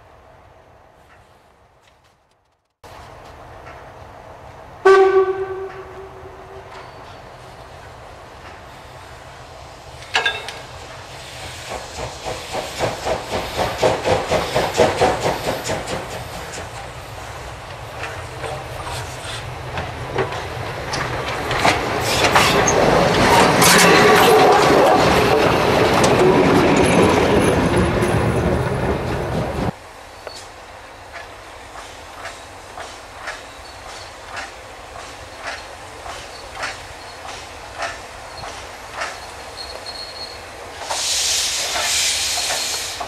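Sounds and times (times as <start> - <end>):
steam locomotive whistle: 4.8 - 7.0
steam locomotive exhaust beats: 8.4 - 43.0.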